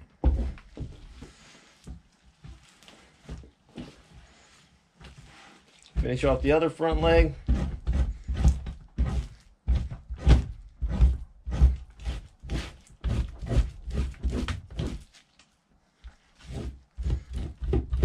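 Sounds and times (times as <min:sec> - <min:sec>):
knife scraping hide: 0:05.2 - 0:15.3, 0:16.4 - 0:17.7.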